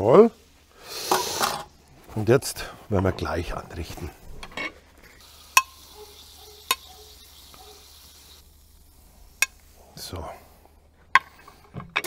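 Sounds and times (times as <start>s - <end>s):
shrimp sizzling on a grill plate: 0.8s - 1.6s, 5.2s - 10.1s.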